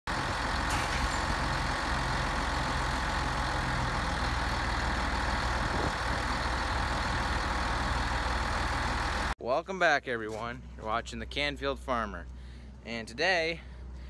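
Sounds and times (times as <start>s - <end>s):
tractor diesel engine idling: 0.1s - 9.4s.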